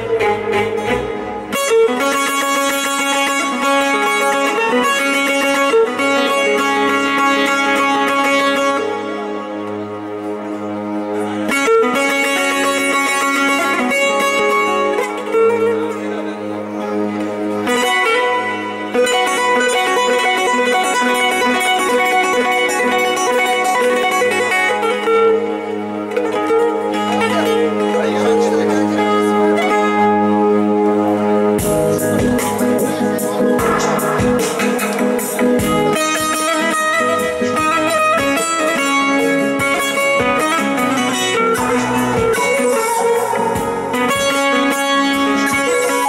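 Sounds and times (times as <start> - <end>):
electronic keyboard accompaniment: 0.0 - 46.0
plucked saz folk melody: 0.0 - 46.0.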